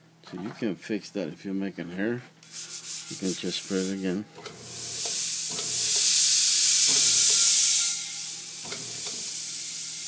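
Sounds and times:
stiff brush scrubbing plate: 2.5 - 4.2.

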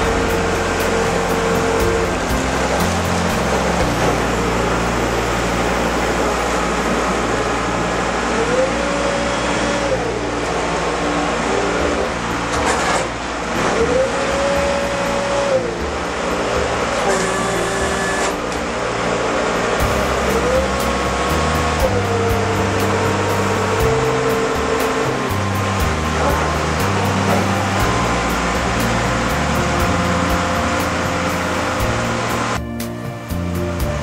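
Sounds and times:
boat engine running: 0.0 - 34.0.

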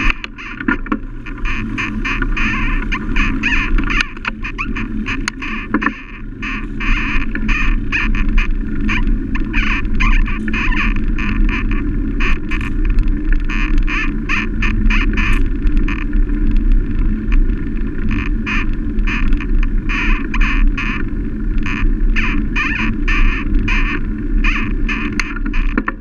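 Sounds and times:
wind and road rumble: 0.0 - 26.0
wind noise bursts: 0.0 - 26.0.

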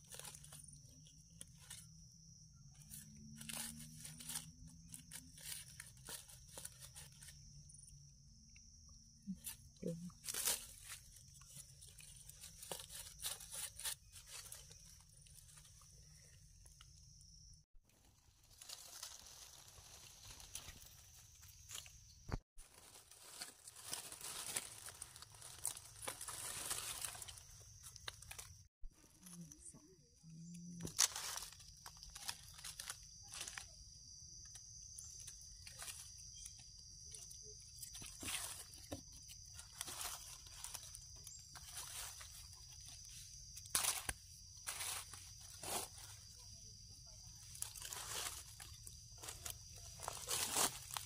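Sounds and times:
knife crunching into soil and leaves: 9.3 - 15.6, 18.4 - 28.6, 30.8 - 34.4, 37.7 - 46.0, 47.6 - 51.0.

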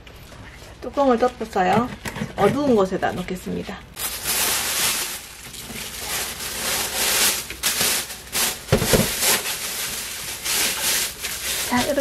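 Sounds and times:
plastic bag rustling: 4.0 - 12.0.

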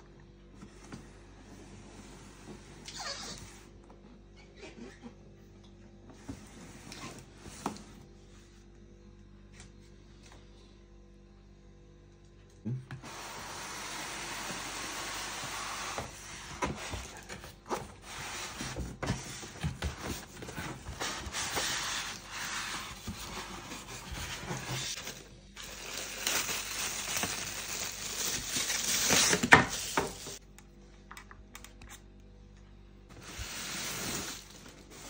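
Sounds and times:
plastic bag crinkling: 24.8 - 30.4.

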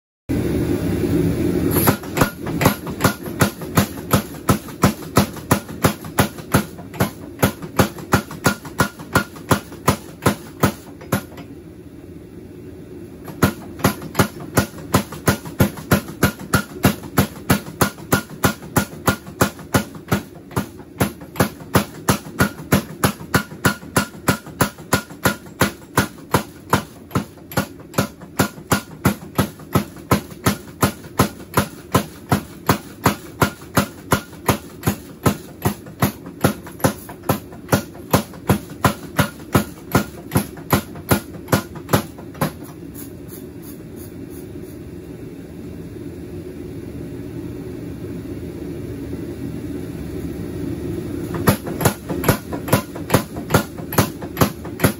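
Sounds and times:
steady hum: 0.3 - 54.9
power hammer striking steel: 1.8 - 11.5, 13.2 - 43.1, 51.4 - 54.9.

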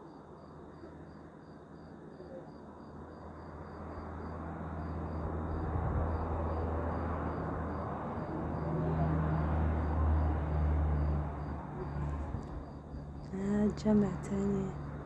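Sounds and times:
road noise: 3.0 - 15.0.

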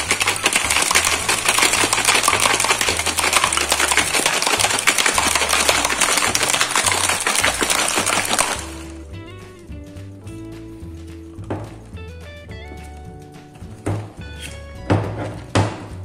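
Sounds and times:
ice rattling in cocktail shaker: 0.0 - 9.0
soft background music: 0.6 - 16.0.

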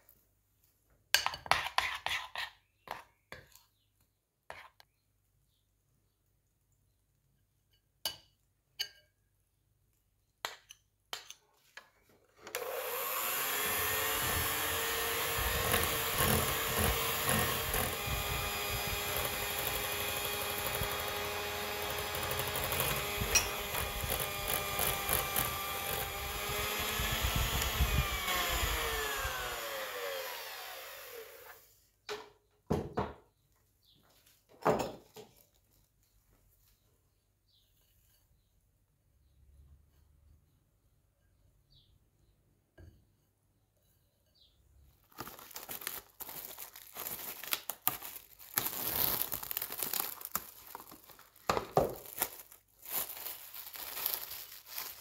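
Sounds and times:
electric mixer beating batter: 12.6 - 31.7.

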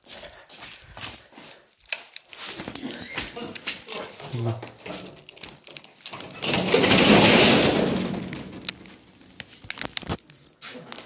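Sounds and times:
metal shutter rattling: 4.1 - 9.3
clicks and knocks: 4.7 - 10.2.

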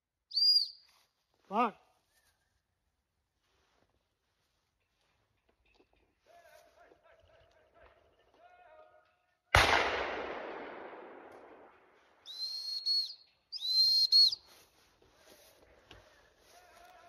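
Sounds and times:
shotgun shot echoing: 9.6 - 12.2
dog whistle blasts: 12.2 - 14.5.

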